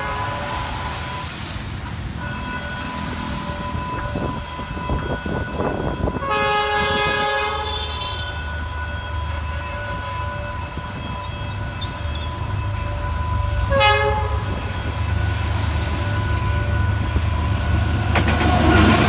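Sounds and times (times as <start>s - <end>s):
locomotive horn: 0.0s - 18.0s
level crossing warning bell ringing: 2.1s - 17.3s.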